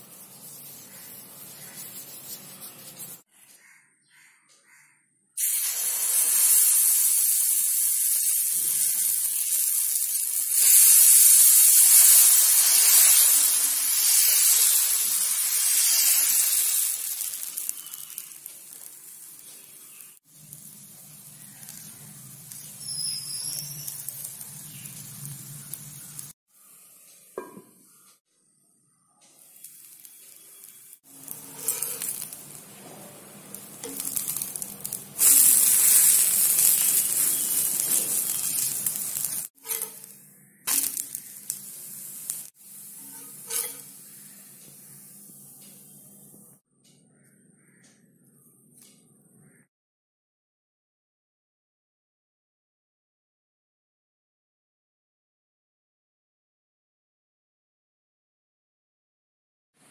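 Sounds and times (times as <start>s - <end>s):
batter sizzling on a hot pan: 0.0s - 3.3s, 5.4s - 27.0s, 29.3s - 46.3s.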